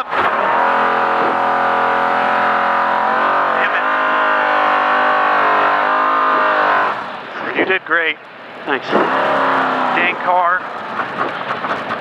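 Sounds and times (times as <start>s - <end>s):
race engine from inside cab: 0.0s - 12.0s.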